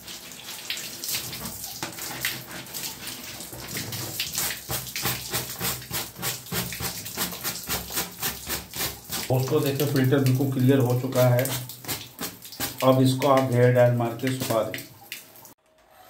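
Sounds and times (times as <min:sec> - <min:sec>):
running water: 0:00.0 - 0:15.6
brush scrubbing mesh filter: 0:01.2 - 0:10.0, 0:10.8 - 0:14.8.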